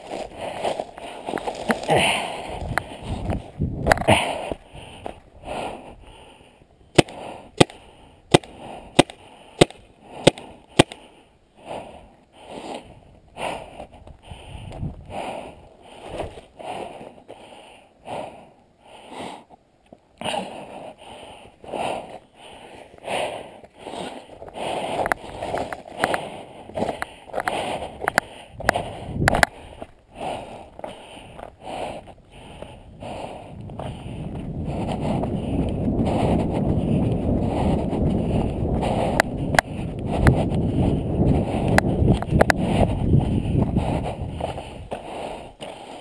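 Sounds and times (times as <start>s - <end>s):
heavy breathing: 0.0s - 19.6s, 20.2s - 46.0s
paintball marker shots: 6.9s - 11.1s.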